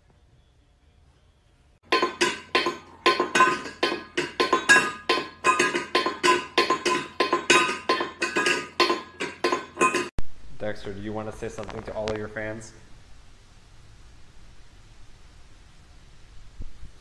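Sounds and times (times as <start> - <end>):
rapid ringing clinks: 1.8 - 10.1.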